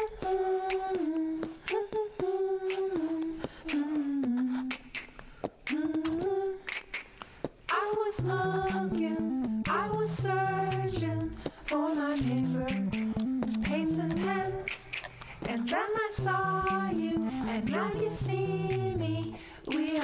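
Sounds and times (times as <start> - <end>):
person humming a melody: 7.8 - 20.0.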